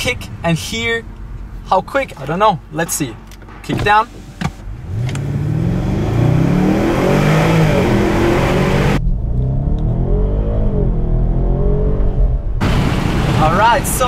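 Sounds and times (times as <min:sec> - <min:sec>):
car engine revving hard: 0:04.7 - 0:13.6.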